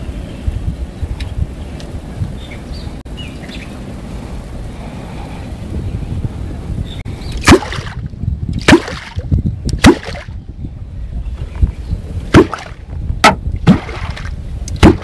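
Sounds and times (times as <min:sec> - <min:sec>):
catfish clonk striking water: 0:07.4 - 0:08.0, 0:08.6 - 0:09.2, 0:09.8 - 0:10.3, 0:12.3 - 0:15.0.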